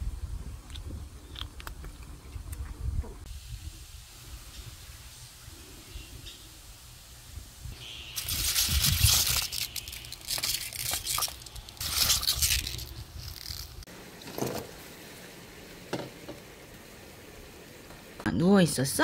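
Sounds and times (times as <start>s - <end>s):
pea pods rustling and crinkling: 7.9s - 13.9s.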